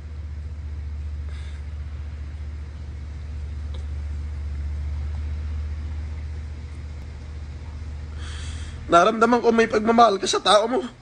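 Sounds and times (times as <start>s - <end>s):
low rumbling hum: 0.0s - 11.0s.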